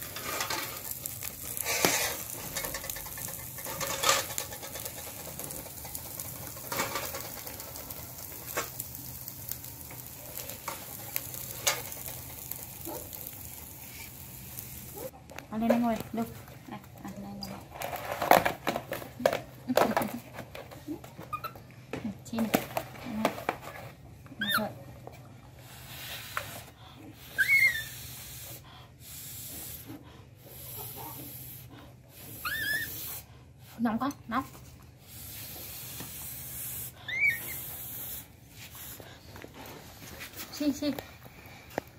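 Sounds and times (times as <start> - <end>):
utensils clinking on pan and plates: 0.0 - 8.8
food sizzling in a frying pan: 0.0 - 15.1
soft hissing noise: 0.0 - 15.1, 25.5 - 33.8, 34.5 - 41.9
baby monkey squeaking: 32.4 - 33.0, 37.0 - 37.6.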